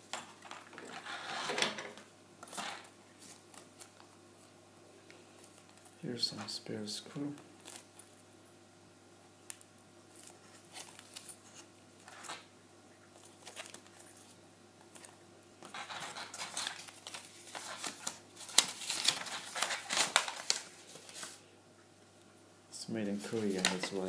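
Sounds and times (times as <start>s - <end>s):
plastic bag crinkling: 13.2s - 21.4s, 23.2s - 24.0s
paper sheet unfolding: 14.9s - 21.4s, 23.2s - 24.0s.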